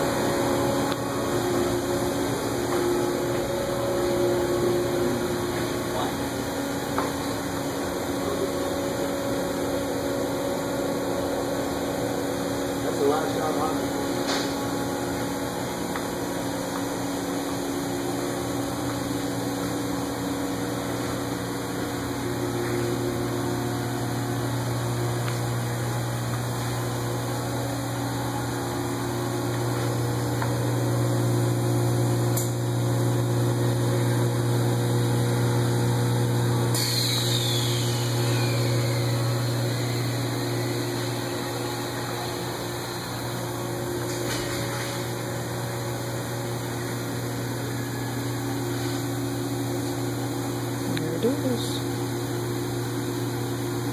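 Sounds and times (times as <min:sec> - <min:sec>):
factory machinery hum: 0:00.0 - 0:53.9.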